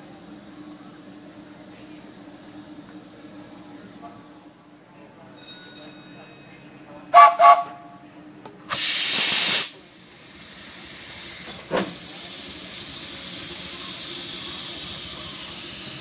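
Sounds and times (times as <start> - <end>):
steam locomotive venting steam: 8.7 - 16.0.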